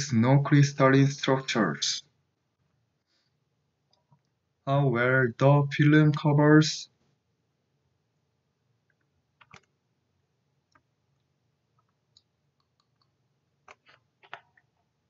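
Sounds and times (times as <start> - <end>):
computer mouse clicks: 8.9 - 9.7, 10.7 - 14.7.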